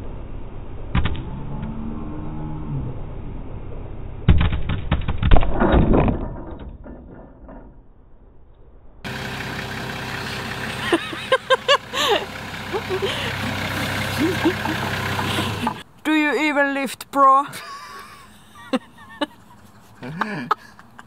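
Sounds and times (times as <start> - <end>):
forklift engine idling: 9.1 - 15.9.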